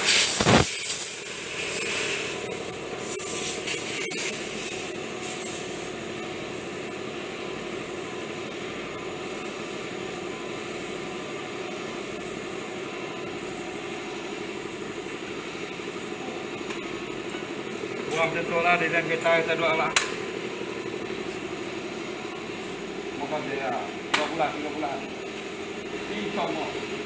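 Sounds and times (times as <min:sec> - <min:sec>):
airbrush hissing: 0:00.0 - 0:02.4, 0:03.0 - 0:06.9
steady machine hum: 0:00.0 - 0:27.0.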